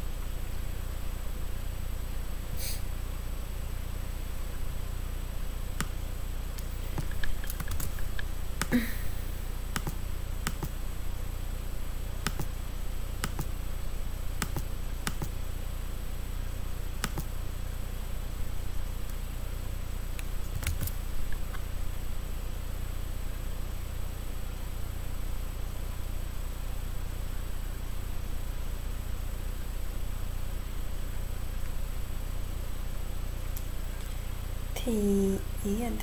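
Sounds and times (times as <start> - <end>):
steady low hum: 0.0 - 36.0
irregular short clicks: 6.6 - 8.8, 9.7 - 10.8, 12.2 - 12.5, 13.2 - 13.5, 14.4 - 15.4, 17.0 - 17.3.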